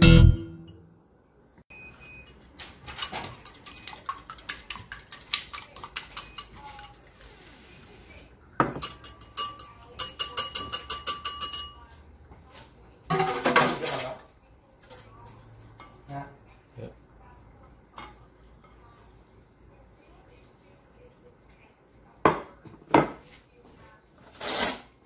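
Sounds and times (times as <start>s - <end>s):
whisk clinking against bowl: 2.8s - 7.1s, 8.7s - 11.9s.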